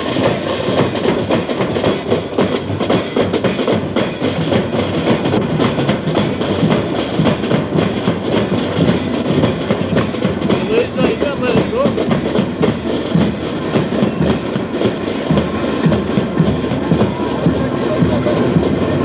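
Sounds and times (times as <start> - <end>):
drums beating march rhythm: 0.0 - 19.0
marching flute band playing: 0.0 - 19.0.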